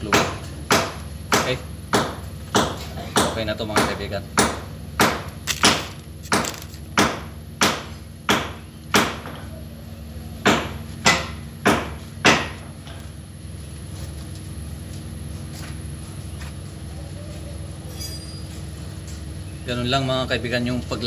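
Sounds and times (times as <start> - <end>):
hammer blows ringing: 0.0 - 9.5, 10.4 - 12.9
steady low hum: 0.0 - 21.0.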